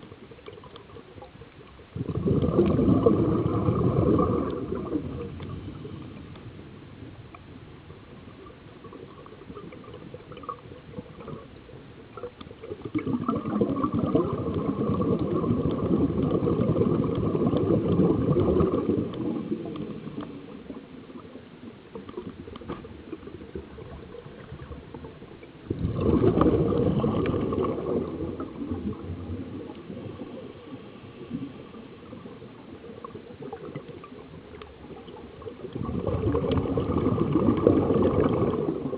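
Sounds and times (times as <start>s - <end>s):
diver exhaling bubbles underwater: 1.8s - 6.2s, 12.2s - 21.3s, 23.0s - 38.9s.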